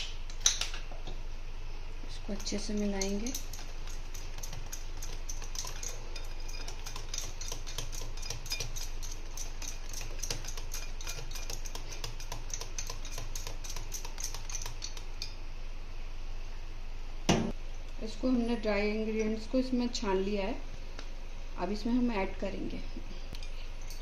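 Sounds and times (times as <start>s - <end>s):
whisk clicking against glass bowl: 2.3s - 15.3s.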